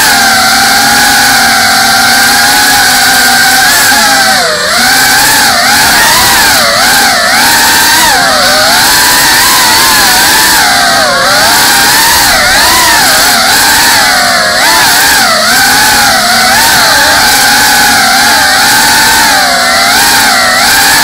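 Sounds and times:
drone motors and propellers whining: 0.0 - 21.0.

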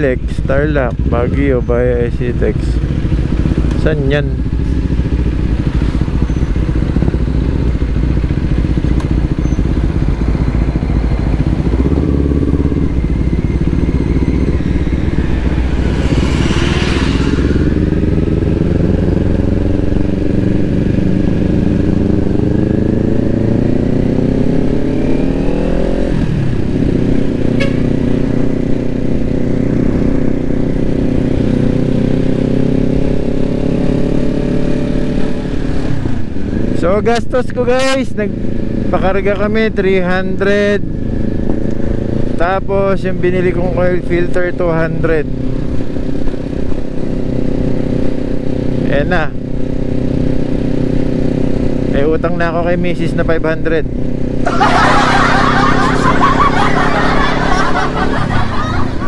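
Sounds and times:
motorcycle engine revving: 0.0 - 59.0.

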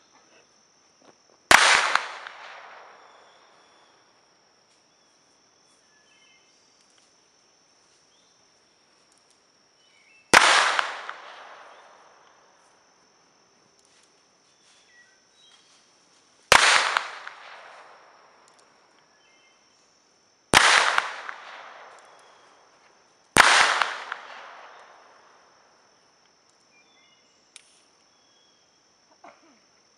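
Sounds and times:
high insect drone: 0.0 - 29.9
pistol shots echoing: 1.5 - 3.3, 10.4 - 11.9, 16.5 - 17.9, 20.6 - 22.4, 23.4 - 24.9
faint bird chirps: 4.9 - 6.8, 14.5 - 15.8, 26.7 - 27.5.

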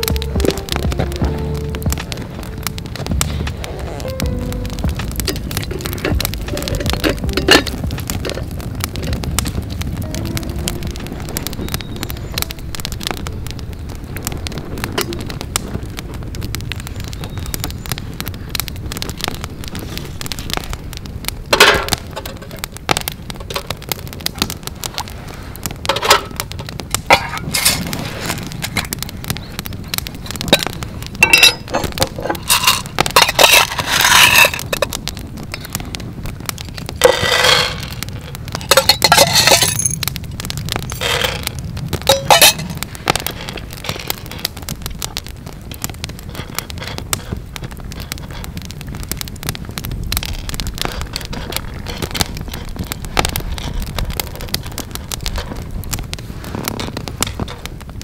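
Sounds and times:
campfire crackling: 0.0 - 58.0
metal camp gear clinking: 38.7 - 40.0.

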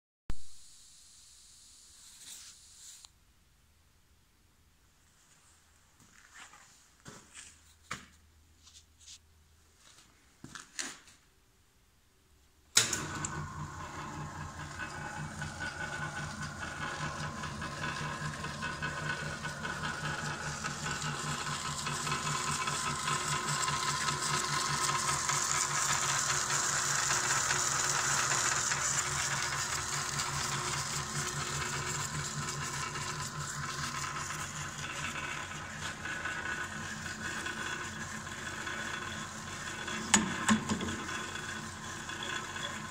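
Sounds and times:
drill press motor humming: 12.7 - 42.9.

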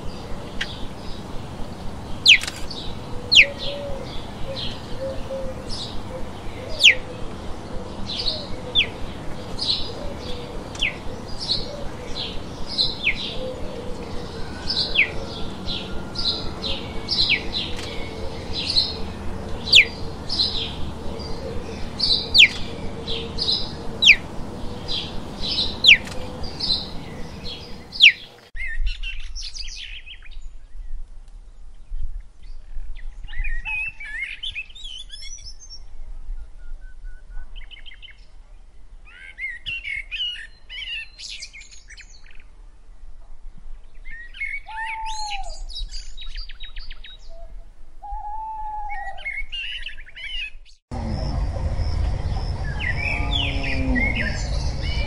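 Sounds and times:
steady low hum: 0.0 - 28.1, 50.9 - 55.0
high bird chirps: 2.1 - 28.9.

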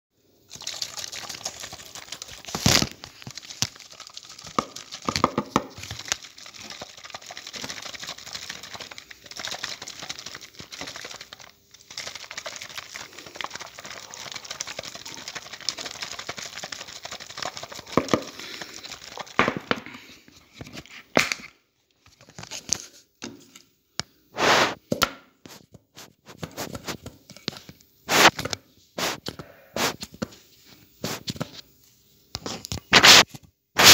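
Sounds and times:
milk squirting into metal pail: 0.5 - 19.7.

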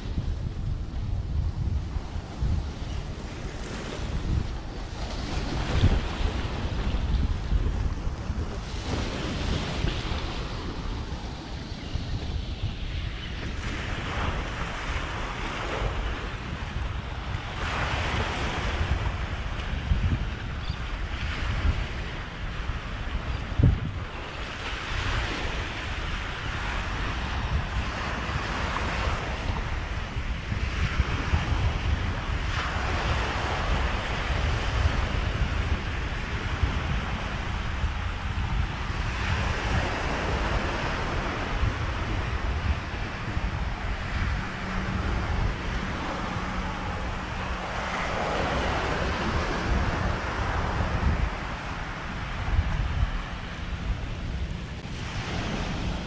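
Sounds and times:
surf washing: 0.0 - 56.0
wind buffeting microphone: 0.0 - 56.0
rushing wave swell: 38.8 - 56.0.

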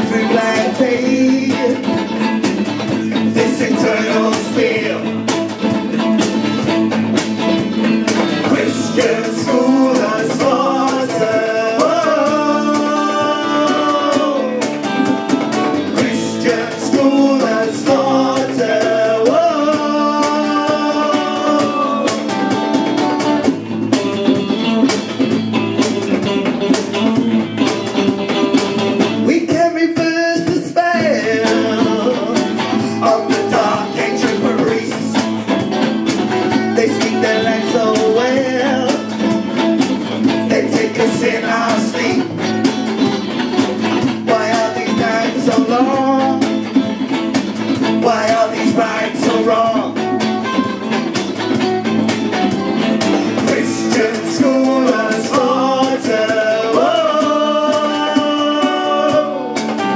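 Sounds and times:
male and female singers: 0.0 - 2.2, 2.8 - 5.4, 8.1 - 22.8, 29.2 - 35.6, 36.3 - 39.2, 40.2 - 42.7, 44.0 - 46.6, 47.8 - 50.3, 53.2 - 59.9
electric guitars: 0.0 - 59.9
steady drum beat: 0.0 - 59.9.

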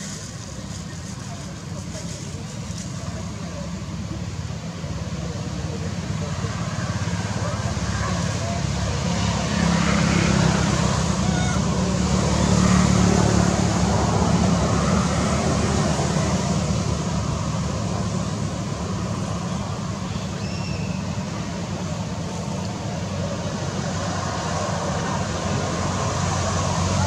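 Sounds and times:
low rumbling background noise: 0.0 - 27.0
faint high chirp: 20.1 - 21.1.

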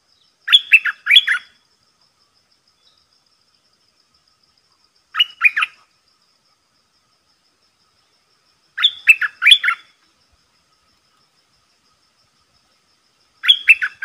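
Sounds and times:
bird singing whistled notes: 0.1 - 1.6, 5.2 - 5.8, 8.8 - 9.9, 13.4 - 14.0.

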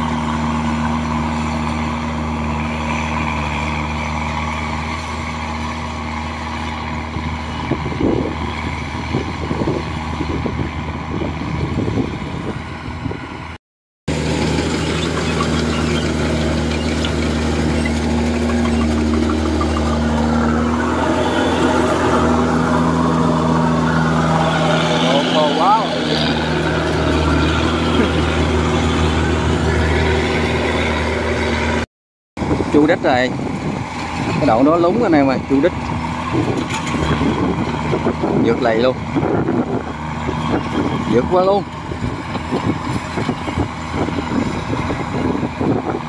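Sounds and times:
combine harvester diesel engine drone: 0.0 - 31.8, 32.4 - 46.0.

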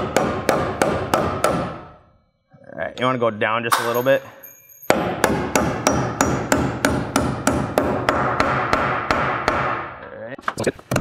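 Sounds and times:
hammer driving nail into wood: 0.0 - 1.9, 4.9 - 9.9.

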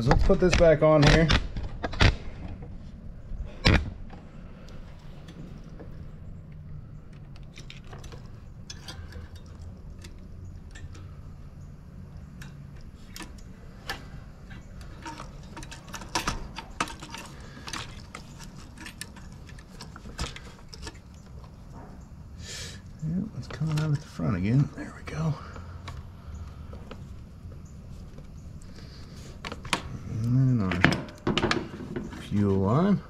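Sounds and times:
low steady hum: 0.0 - 33.0
small parts clicking and clinking: 4.7 - 22.2.

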